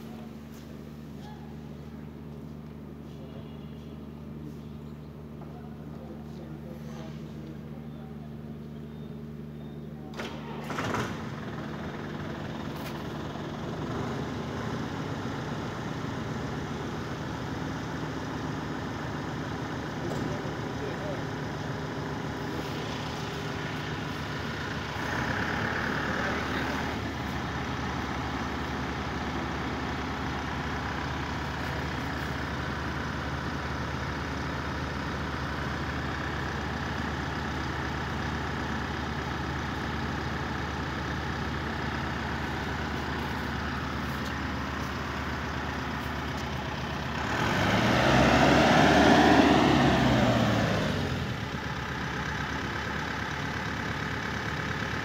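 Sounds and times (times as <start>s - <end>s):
engine running: 0.0s - 55.0s
vehicle passing by: 47.1s - 51.4s.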